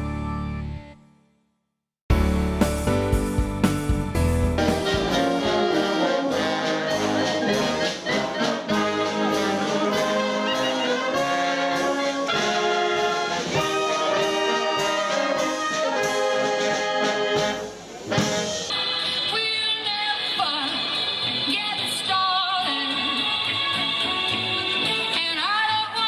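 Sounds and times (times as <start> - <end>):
wind band playing a tune: 4.5 - 18.8.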